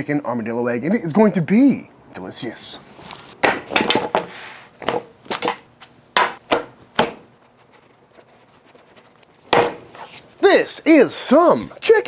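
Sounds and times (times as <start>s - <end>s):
knives knocking on wooden table: 6.2s - 7.2s.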